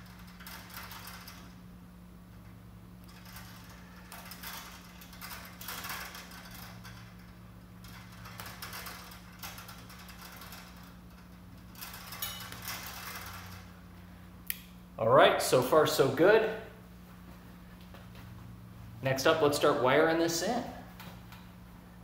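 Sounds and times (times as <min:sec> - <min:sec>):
wire strippers clicking and scraping: 0:00.0 - 0:14.7, 0:20.3 - 0:21.6.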